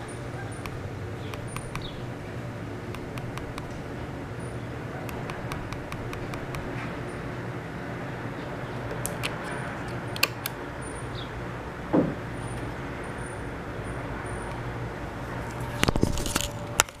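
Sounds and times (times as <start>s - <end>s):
steady low hum: 0.0s - 17.0s
dull knock: 11.9s - 12.2s.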